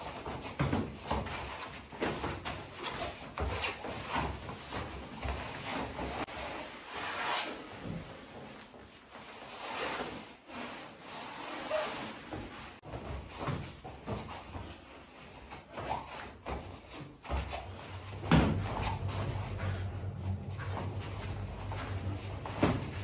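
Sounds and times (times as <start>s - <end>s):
thuds on foam mats: 15.8s - 23.0s.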